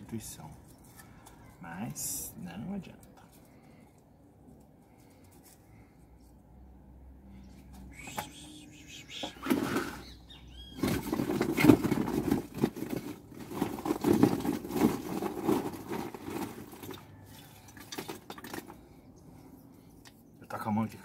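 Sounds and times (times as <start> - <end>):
hands rustling potting medium: 7.7 - 20.4.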